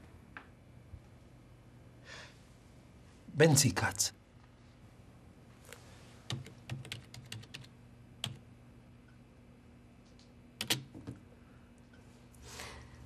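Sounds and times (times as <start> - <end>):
faint low hum: 0.0 - 13.0
computer keyboard typing: 6.3 - 8.4, 10.6 - 11.1.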